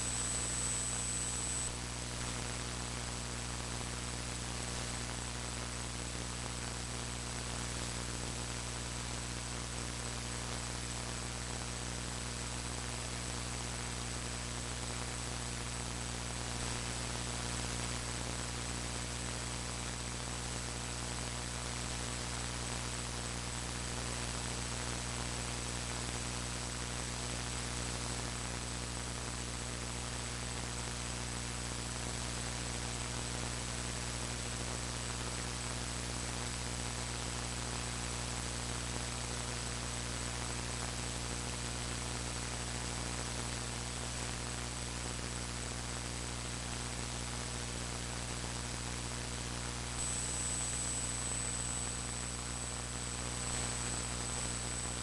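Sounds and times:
thin high whine: 0.0 - 2.5, 49.7 - 55.0
electrical hum: 0.0 - 5.6, 48.2 - 55.0
static hiss: 0.0 - 55.0.

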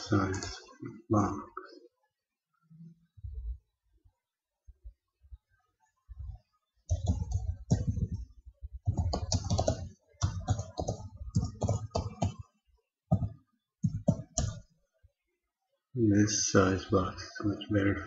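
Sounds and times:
typing on computer keyboard: 6.9 - 12.4, 13.1 - 14.6.

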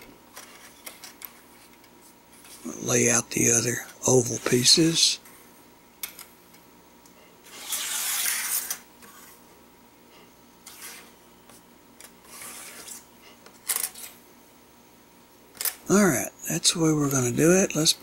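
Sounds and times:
plastic toy track scraping: 7.5 - 9.3, 12.2 - 13.0.

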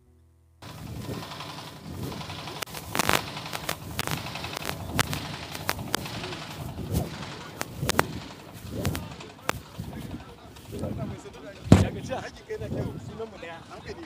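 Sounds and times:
sharp cracks or bangs: 0.7 - 10.0
murmur of crowd voices: 1.0 - 14.0.

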